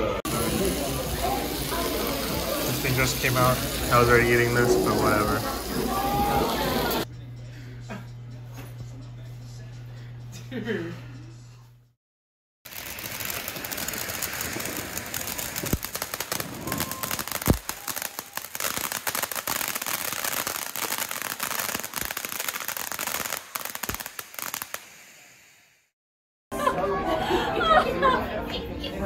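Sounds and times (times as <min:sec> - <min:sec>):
fireworks crackling: 0:00.0 - 0:07.1, 0:12.7 - 0:25.9
deep firework bangs: 0:12.7 - 0:24.8.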